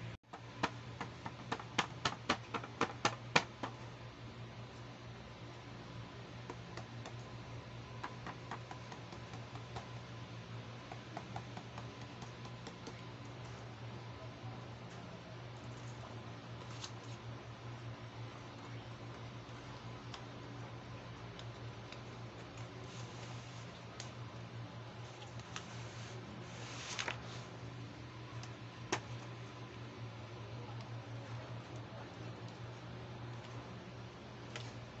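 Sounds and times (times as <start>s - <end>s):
steady low hum: 0.0s - 35.0s
fingers tapping cardboard box: 0.3s - 3.8s, 8.0s - 9.9s, 10.8s - 13.1s.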